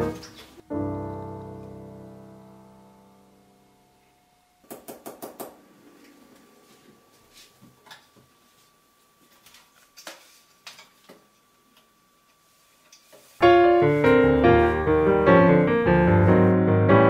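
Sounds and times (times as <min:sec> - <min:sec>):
piano music: 0:00.0 - 0:03.9, 0:13.4 - 0:17.0.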